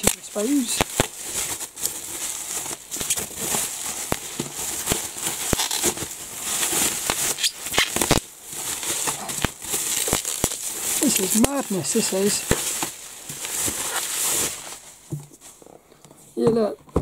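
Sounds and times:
bubble wrap crinkling: 0:00.0 - 0:16.4.

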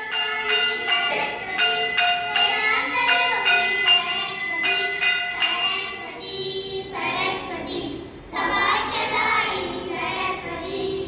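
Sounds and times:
brass hand bell ringing: 0:00.0 - 0:06.2
group singing devotional song: 0:00.0 - 0:11.0.

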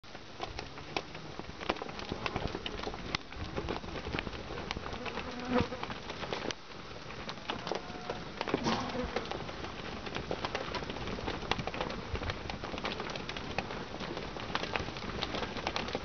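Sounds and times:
cattle hooves on dry dirt: 0:00.0 - 0:16.0.

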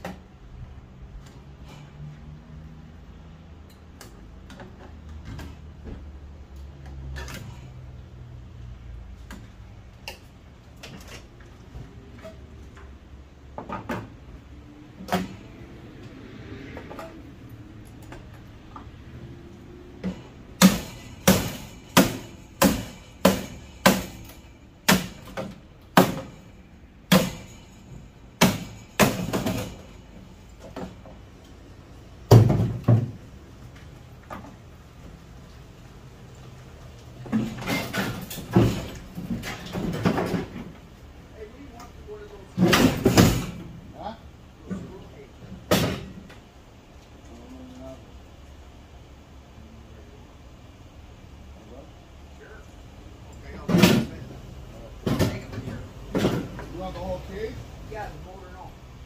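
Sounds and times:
hammer striking sheet metal: 0:20.6 - 0:25.4, 0:27.1 - 0:29.9.

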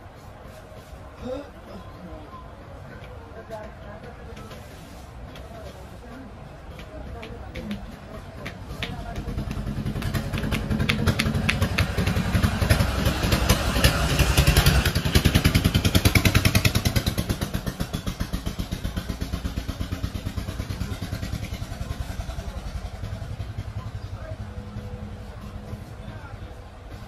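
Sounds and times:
hands tapping on scalp: 0:08.5 - 0:12.2.

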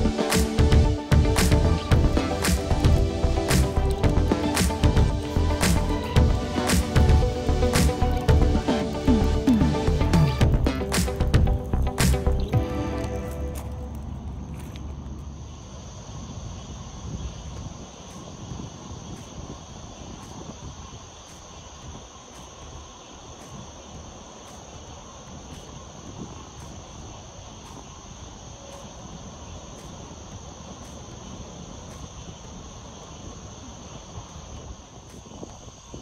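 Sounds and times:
low rumbling background noise: 0:00.0 - 0:20.0
crickets trilling: 0:00.0 - 0:36.0.

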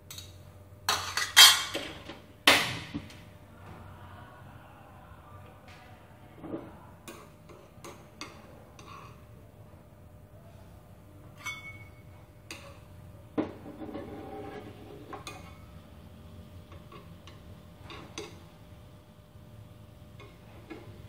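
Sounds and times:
utensils scraping a frying pan: 0:00.9 - 0:01.8, 0:06.4 - 0:09.3, 0:11.3 - 0:15.8.

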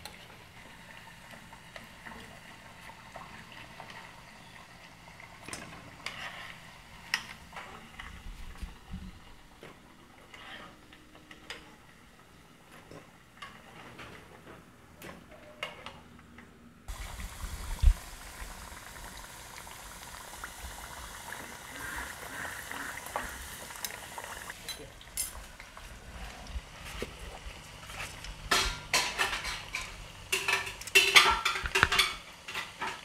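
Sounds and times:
plantain frying in hot oil: 0:00.0 - 0:09.1, 0:16.9 - 0:26.0, 0:26.6 - 0:33.0
spoon tapping and scraping pot: 0:28.5 - 0:33.0.

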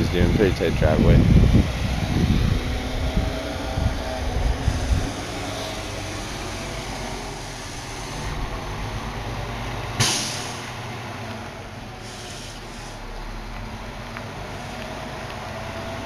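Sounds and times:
diesel truck engine rumbling: 0:00.0 - 0:16.0
burst of hiss: 0:10.0 - 0:10.6, 0:12.0 - 0:13.0.

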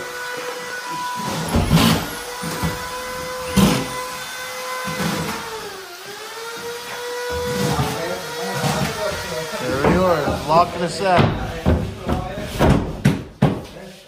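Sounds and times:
power tool whining: 0:00.0 - 0:11.1.

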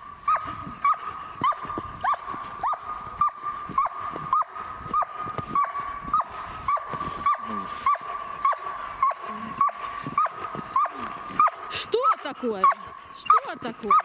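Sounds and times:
dog whining: 0:00.3 - 0:14.0.

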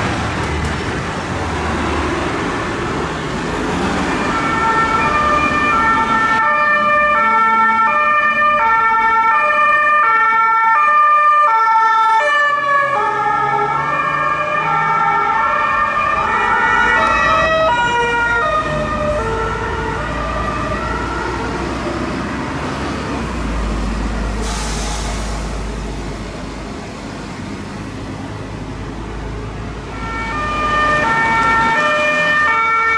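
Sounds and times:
two-tone police siren: 0:03.9 - 0:22.0, 0:29.9 - 0:32.9.

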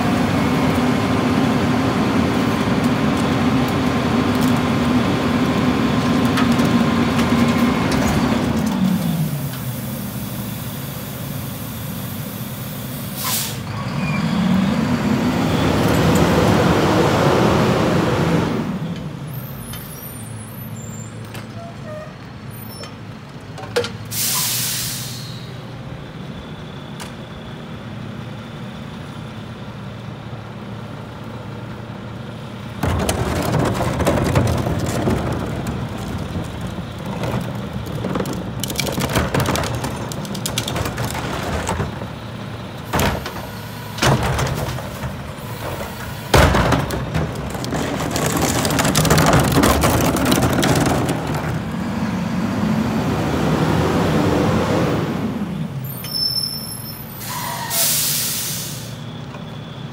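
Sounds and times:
garbage truck engine: 0:00.0 - 0:59.9
air brake hiss: 0:09.2 - 0:13.7, 0:24.1 - 0:25.6, 0:57.2 - 0:59.1.

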